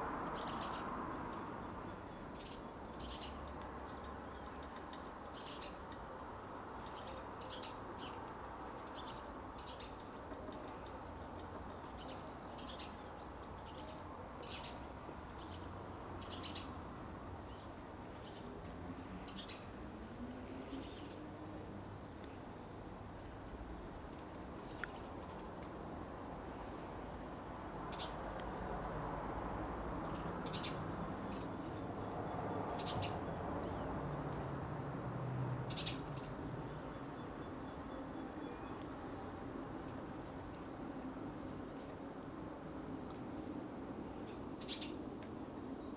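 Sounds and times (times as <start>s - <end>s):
small birds chirping: 0.3s - 6.1s, 6.7s - 16.8s, 17.4s - 18.6s, 19.2s - 19.8s, 20.6s - 22.4s, 27.8s - 28.2s, 30.0s - 33.9s, 35.7s - 39.0s, 44.2s - 45.9s.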